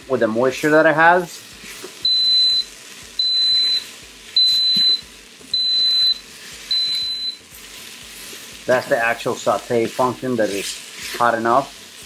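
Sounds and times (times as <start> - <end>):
high-pitched beeps: 2.0 - 7.4.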